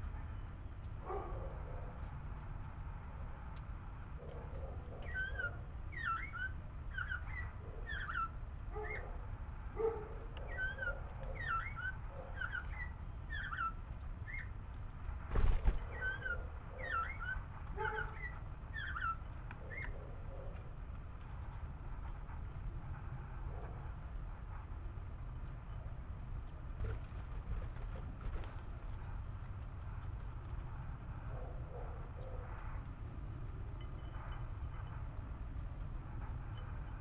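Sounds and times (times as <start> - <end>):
small birds chirping: 4.5 - 9.1, 10.0 - 20.6.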